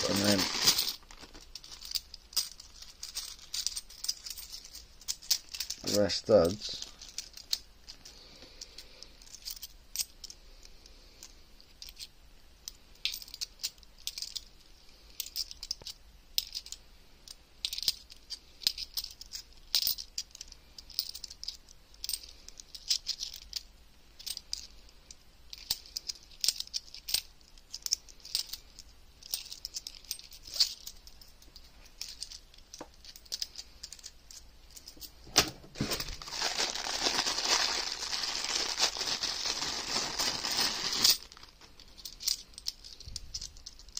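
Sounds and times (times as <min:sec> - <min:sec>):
coins clicking and chinking: 0:00.0 - 0:06.0, 0:13.0 - 0:14.5, 0:15.2 - 0:16.8, 0:17.6 - 0:23.6, 0:25.5 - 0:35.2, 0:40.2 - 0:43.9.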